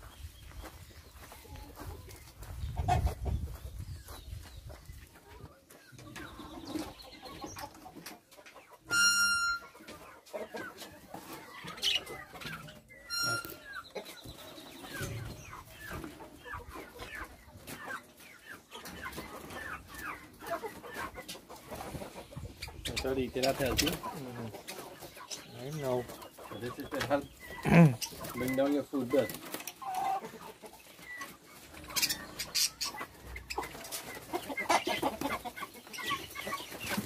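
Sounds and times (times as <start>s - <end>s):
chickens and turkeys clucking: 0.0s - 37.0s
sharp high-pitched squeals: 8.9s - 9.6s, 13.1s - 13.6s.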